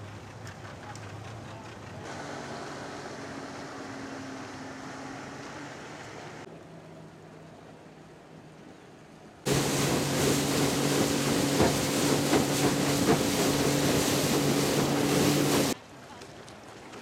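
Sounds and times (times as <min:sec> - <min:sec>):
distant boat engines: 0:00.0 - 0:15.8
outboard motor running: 0:01.1 - 0:06.4, 0:09.5 - 0:15.8
knocks on boat: 0:09.5 - 0:15.0
water rushing past: 0:09.5 - 0:15.8.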